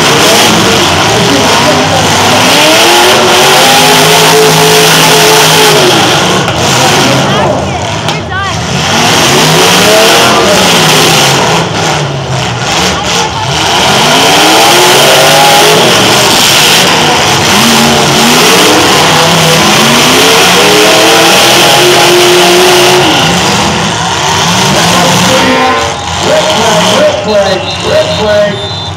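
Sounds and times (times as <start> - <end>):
car engines revving hard: 0.0 - 28.9
loud din: 0.0 - 28.9.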